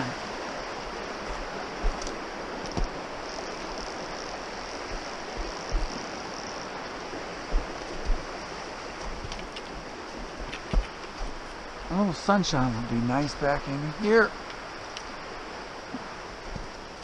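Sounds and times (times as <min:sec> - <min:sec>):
brook running: 0:00.0 - 0:17.0
low thumps: 0:04.9 - 0:06.0, 0:07.5 - 0:08.4.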